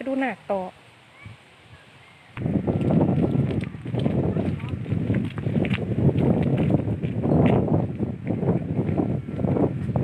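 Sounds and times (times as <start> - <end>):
wind buffeting microphone: 2.0 - 10.0.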